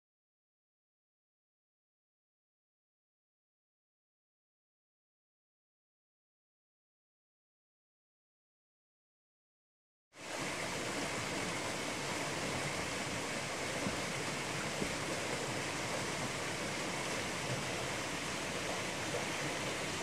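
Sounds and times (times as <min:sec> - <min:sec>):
stream rushing over rocks: 0:10.2 - 0:20.0.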